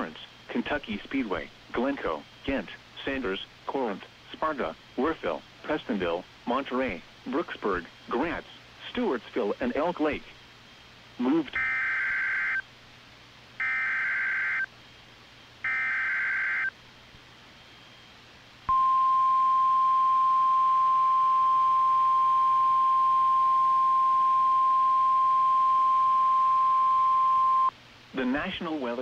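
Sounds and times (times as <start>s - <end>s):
steady alarm tone: 11.6s - 12.6s, 13.6s - 14.7s, 15.6s - 16.7s
electronic data bursts: 13.6s - 14.7s, 15.6s - 16.8s.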